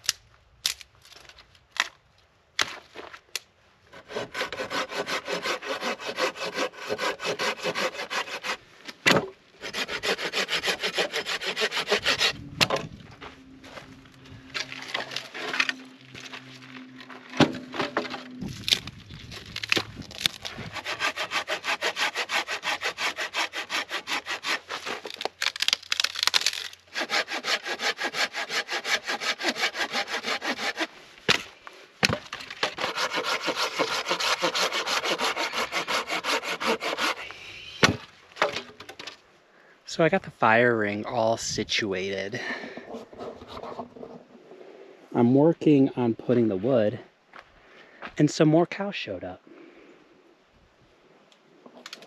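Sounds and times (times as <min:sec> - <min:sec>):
hand saw cutting branch: 0:03.9 - 0:08.6, 0:09.6 - 0:12.7, 0:14.6 - 0:15.8, 0:19.6 - 0:38.0.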